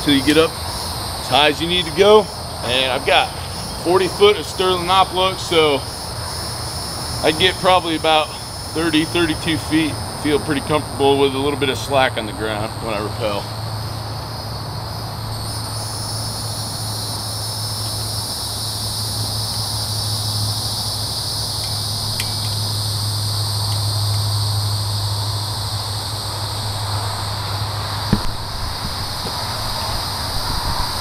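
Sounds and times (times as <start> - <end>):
insect chorus drone: 0.0 - 31.0.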